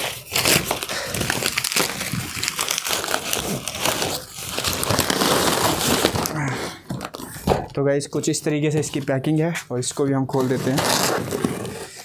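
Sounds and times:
cardboard box tearing and crumpling: 0.0 - 7.7, 10.4 - 12.0.

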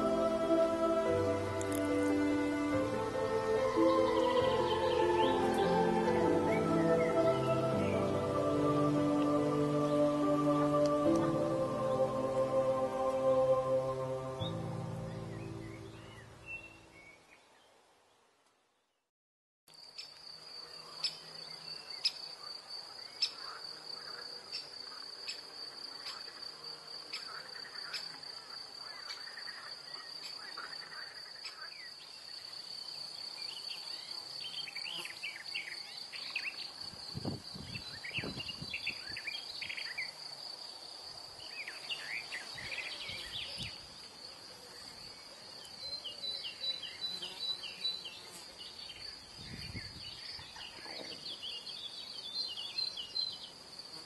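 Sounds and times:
small birds chirping: 0.0 - 11.3, 41.4 - 53.6.

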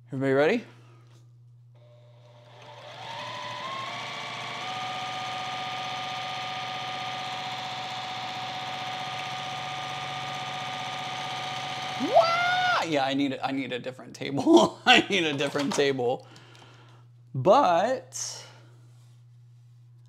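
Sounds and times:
sewing machine stitching: 1.8 - 12.2.

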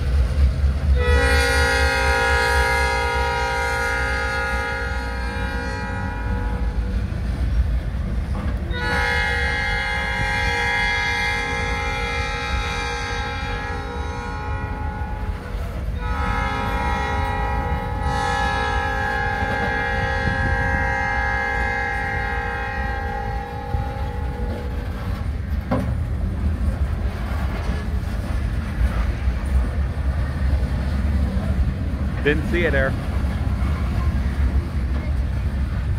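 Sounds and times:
freight train rumbling past: 0.0 - 35.9
rail clatter: 0.0 - 35.9
locomotive air horn: 0.9 - 6.9, 8.7 - 25.3.

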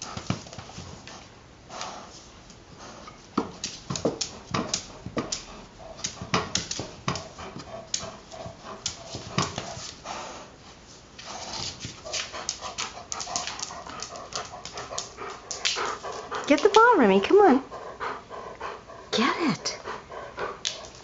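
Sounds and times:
dog scrabbling at a ball: 0.0 - 1.3, 3.4 - 10.0, 11.3 - 16.9.

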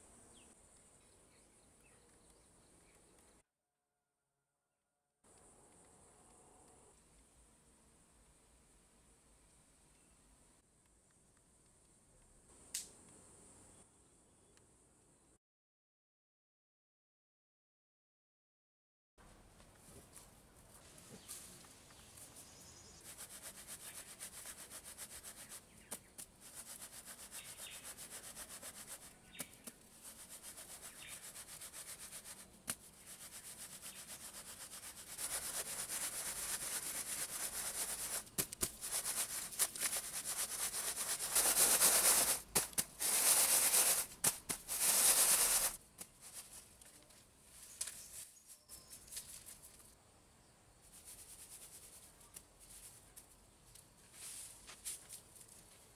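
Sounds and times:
sand sifting through basket: 22.2 - 46.8, 50.9 - 53.2.

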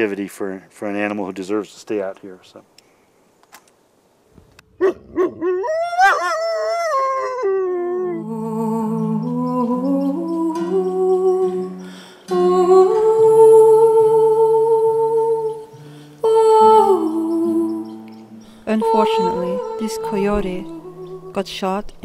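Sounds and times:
wolf howling: 4.8 - 20.2
slow music with held notes: 7.5 - 22.0.

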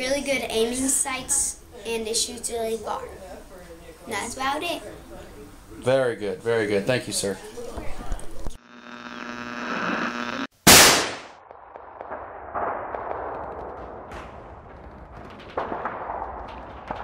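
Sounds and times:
humming tone: 8.6 - 10.5
sharp cracks: 9.6 - 17.0
gunshot-like blast: 10.6 - 13.4.

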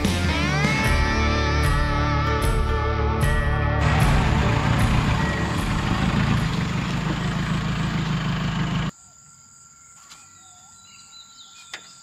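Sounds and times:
diesel engine running: 1.0 - 8.9
faint insect drone: 8.8 - 12.0.

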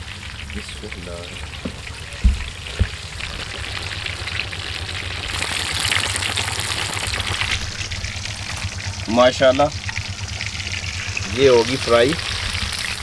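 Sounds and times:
fish frying in sizzling oil: 0.0 - 13.0
dull knocks: 1.6 - 3.0.

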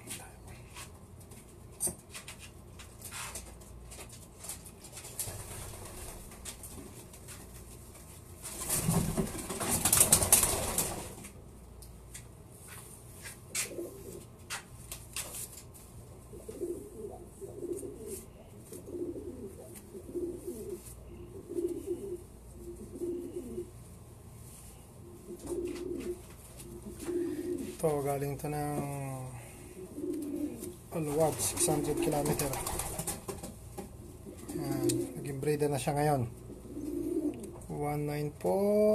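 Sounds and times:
pigeon wings flapping: 4.9 - 7.3, 8.5 - 11.4, 31.0 - 33.6
pigeons cooing: 13.6 - 14.3, 16.3 - 23.8, 25.0 - 27.8, 29.2 - 33.1, 33.9 - 35.3, 36.4 - 37.6.

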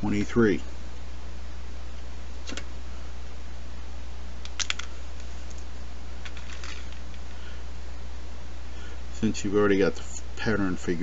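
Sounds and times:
steady low hum: 0.0 - 11.0
resistors clicking into breadboard: 4.4 - 4.9.

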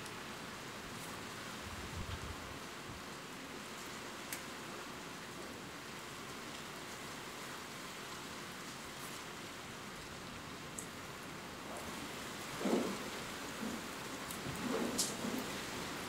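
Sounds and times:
steady rain: 0.0 - 16.0.

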